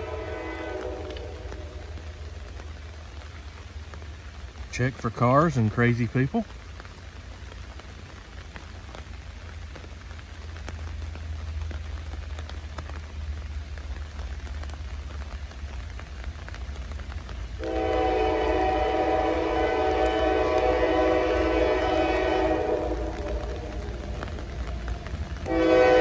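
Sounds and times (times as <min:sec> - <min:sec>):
locomotive air horn chord: 0:00.0 - 0:01.6, 0:17.6 - 0:23.7, 0:25.5 - 0:26.0
pouring rain hiss: 0:00.0 - 0:26.0.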